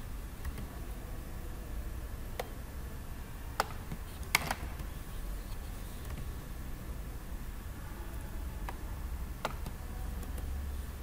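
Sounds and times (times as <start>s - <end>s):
low steady hum: 0.0s - 11.0s
computer mouse clicks: 0.4s - 0.7s, 9.4s - 10.5s.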